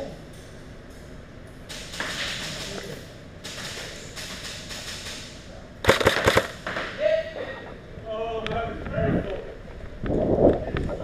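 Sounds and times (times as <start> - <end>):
airsoft gunfire burst: 5.8 - 6.6.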